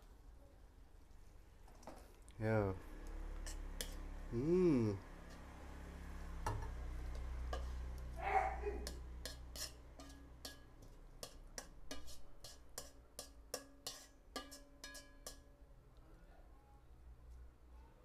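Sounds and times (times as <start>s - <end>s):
metal spatula scraping a wok: 3.2s - 4.2s, 5.2s - 8.1s, 8.8s - 15.4s.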